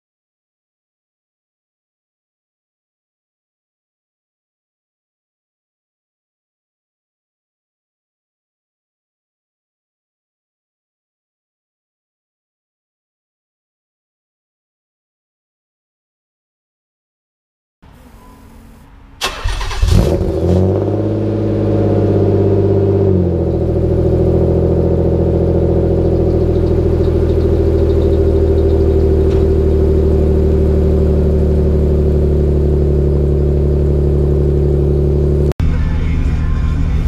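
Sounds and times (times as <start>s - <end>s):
car engine starting and idling: 17.8s - 37.0s.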